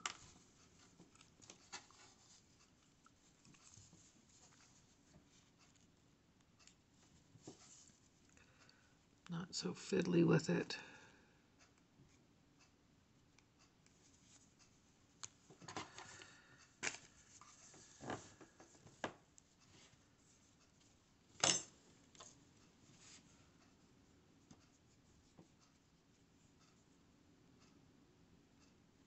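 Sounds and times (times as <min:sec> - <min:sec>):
faint rustling: 0:06.6 - 0:08.6
soft clicks and taps on yarn: 0:13.3 - 0:16.1, 0:24.4 - 0:26.9.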